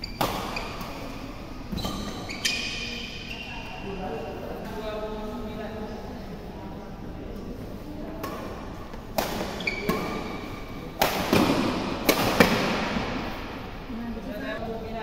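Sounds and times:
shoe squeaking on court floor: 0:00.0 - 0:04.6, 0:09.4 - 0:10.8
racket hitting shuttlecock: 0:00.1 - 0:02.3, 0:08.2 - 0:13.5.

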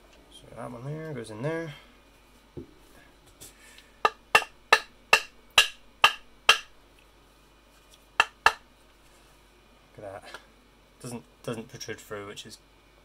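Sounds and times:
sharp hollow knocks: 0:04.1 - 0:06.7, 0:08.2 - 0:08.6.

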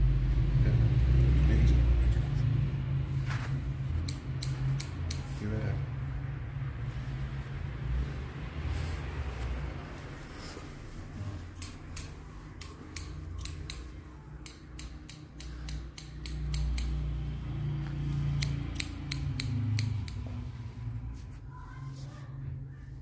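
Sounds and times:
scissors snipping hair: 0:04.0 - 0:05.4, 0:11.4 - 0:20.5.

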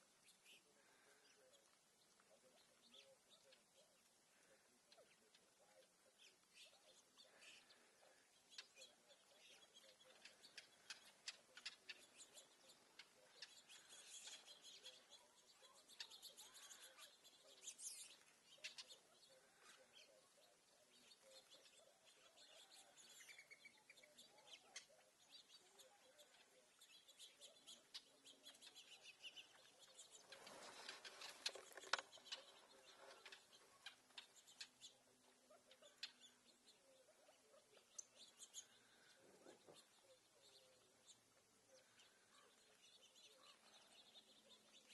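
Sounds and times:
birds pecking seed on gravel: 0:00.0 - 0:44.9
small birds chirping: 0:00.0 - 0:44.9.

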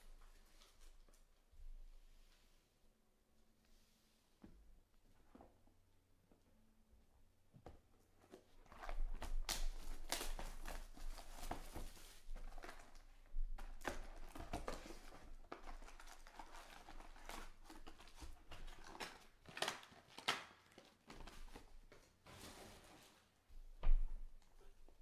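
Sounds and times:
cardboard box crinkling and tearing: 0:08.7 - 0:13.0, 0:13.8 - 0:21.4.

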